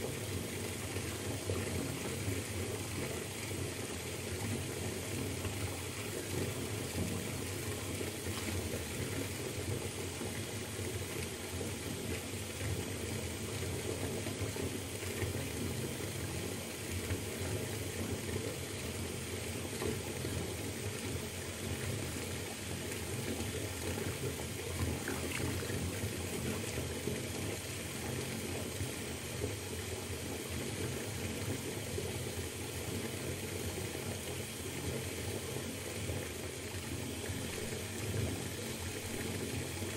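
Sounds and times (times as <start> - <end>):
water pouring into bathtub: 15.5 - 29.9.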